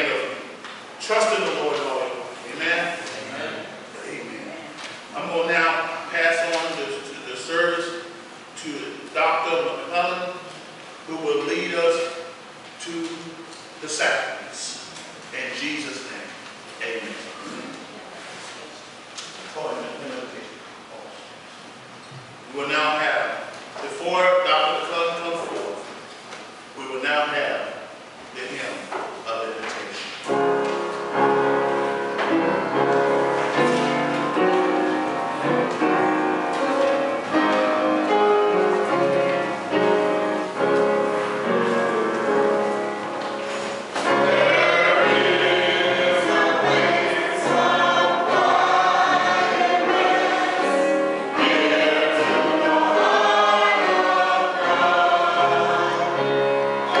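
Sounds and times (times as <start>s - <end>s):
congregation singing a hymn: 30.3s - 57.0s
keyboard accompaniment: 30.3s - 57.0s.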